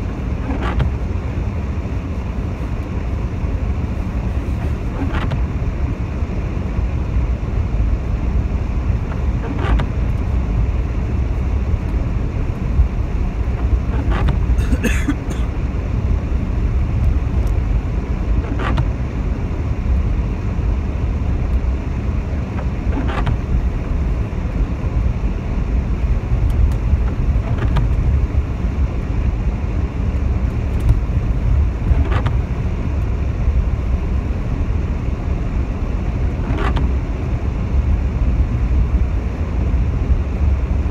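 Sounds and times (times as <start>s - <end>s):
car engine and tyres rumbling: 0.0s - 40.9s
windscreen wipers sweeping: 0.0s - 40.9s
wiper squeak: 0.4s - 1.0s, 4.4s - 5.4s, 9.1s - 10.0s, 13.5s - 14.6s, 31.9s - 32.4s.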